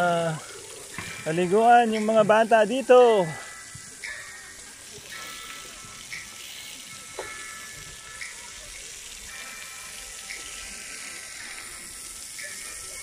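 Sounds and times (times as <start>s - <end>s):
water jets spraying onto concrete: 0.0s - 13.0s.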